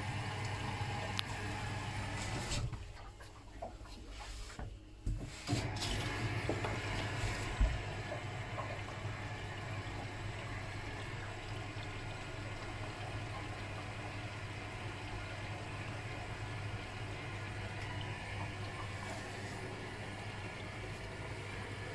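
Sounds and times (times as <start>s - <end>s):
water sloshing in washing machine: 0.0s - 21.9s
washing machine knock: 5.9s - 9.0s.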